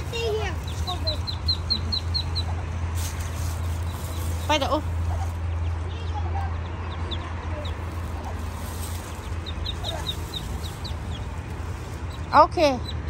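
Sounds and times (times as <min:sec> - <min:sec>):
ducklings peeping: 0:00.0 - 0:13.0.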